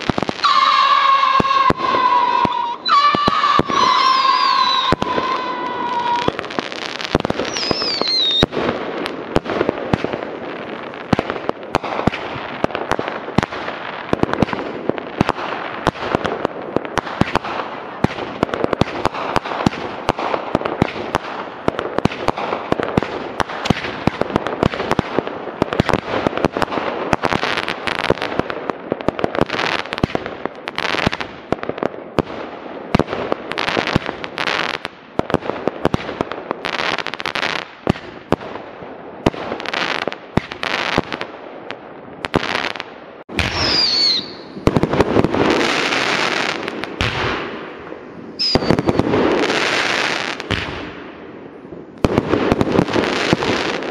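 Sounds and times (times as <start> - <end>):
firework crackles and pops: 0.0 - 53.9
falling firework whistle: 0.3 - 8.5, 43.4 - 44.6, 48.4 - 50.1.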